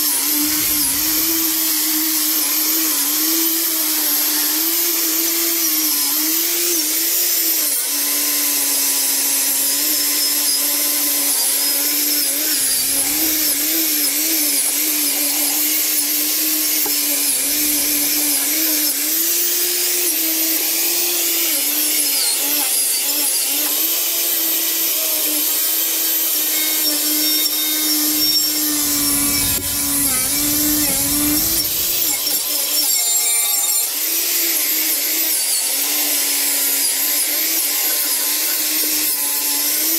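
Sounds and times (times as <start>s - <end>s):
angle grinder grinding metal: 0.0s - 39.9s
low rumbles: 28.7s - 32.4s.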